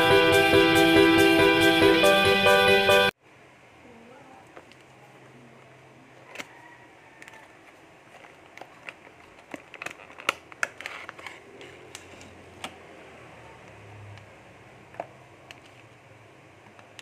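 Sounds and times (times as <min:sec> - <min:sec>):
packaging clicks and rustles: 0:07.2 - 0:12.8.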